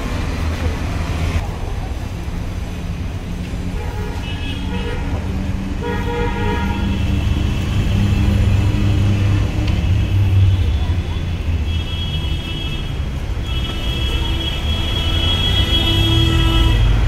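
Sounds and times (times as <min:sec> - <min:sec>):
vehicle engines rumbling: 0:00.0 - 0:17.0.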